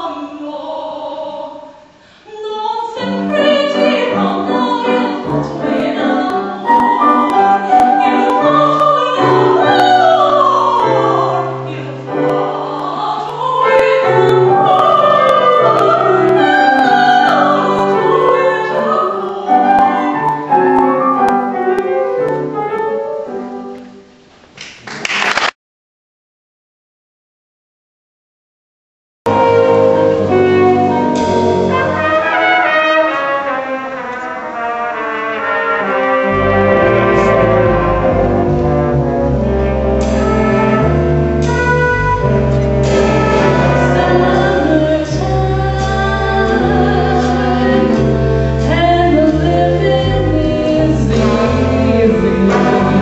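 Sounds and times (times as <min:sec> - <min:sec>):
woman singing opera: 0:00.0 - 0:21.7, 0:43.0 - 0:53.0
piano accompaniment: 0:03.0 - 0:24.3, 0:29.3 - 0:53.0.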